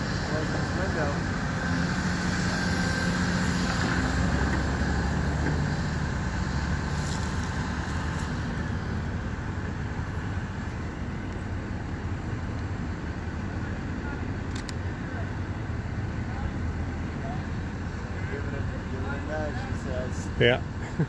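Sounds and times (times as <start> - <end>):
excavator diesel engines rumbling: 0.0 - 21.0.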